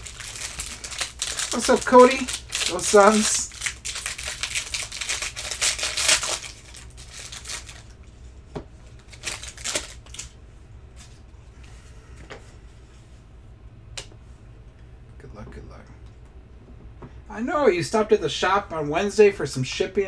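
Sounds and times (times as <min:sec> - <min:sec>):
cards rustling and clicking: 0:00.0 - 0:07.9, 0:08.9 - 0:10.4
foil pack tearing and crinkling: 0:00.0 - 0:08.0, 0:09.0 - 0:10.4.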